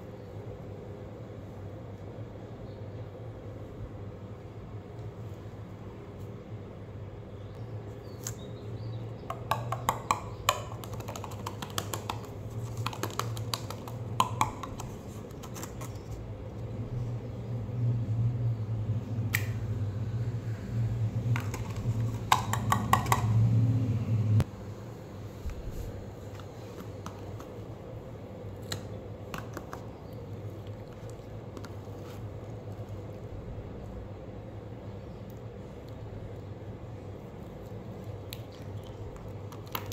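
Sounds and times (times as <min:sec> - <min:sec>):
low steady hum: 0:00.0 - 0:39.9
slime clicking and crackling: 0:09.4 - 0:15.9, 0:37.6 - 0:39.9.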